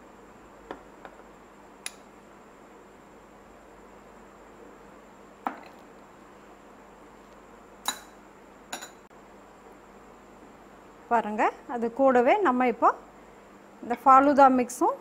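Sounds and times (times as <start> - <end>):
metal spoon clinking against glass: 8.7 - 9.0.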